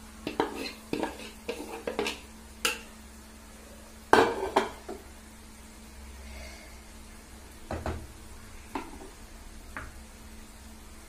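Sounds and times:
spatula scraping and knocking pan: 0.2s - 2.8s, 4.1s - 5.0s.

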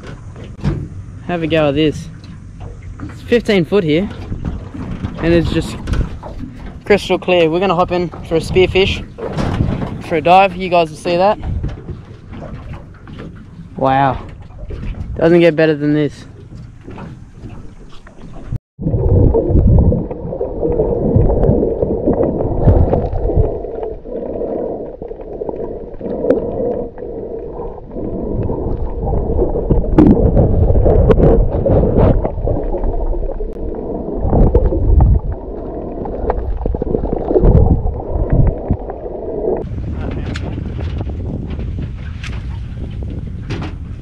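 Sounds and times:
low surges of water: 0.0s - 44.0s
underwater gurgling water: 17.4s - 39.8s.

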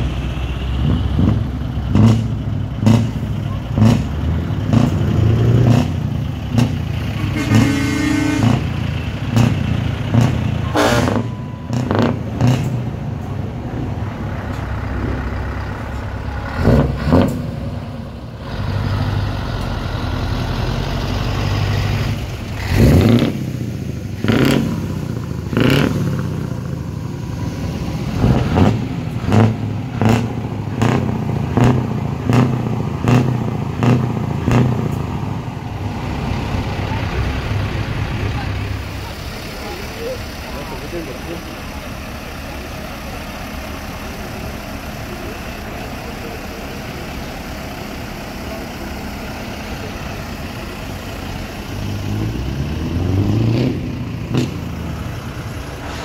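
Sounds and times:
truck diesel engines revving: 0.0s - 56.0s
horn blast: 7.1s - 8.7s, 10.7s - 11.3s.

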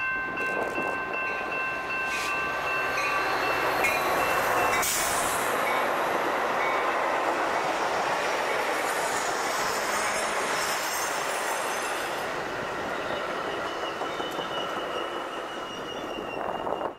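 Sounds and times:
train wheels rushing on rails: 0.3s - 16.9s.

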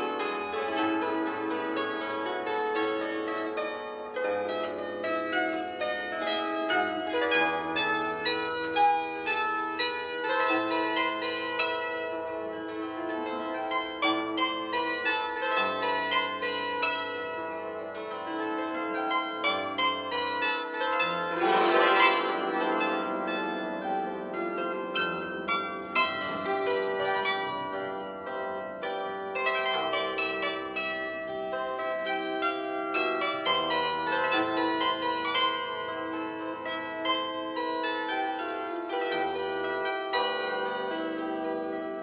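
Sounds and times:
plucked string instrument melody: 0.0s - 42.0s
sweep across many strings: 21.0s - 24.1s.

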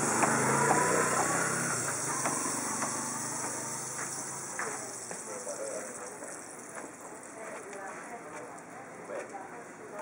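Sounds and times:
steady hiss: 0.0s - 7.2s.

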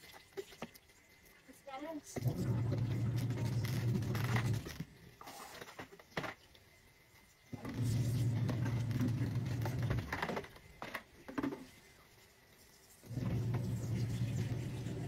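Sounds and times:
washing machine motor humming: 2.2s - 4.6s, 7.6s - 10.2s, 13.1s - 15.0s.

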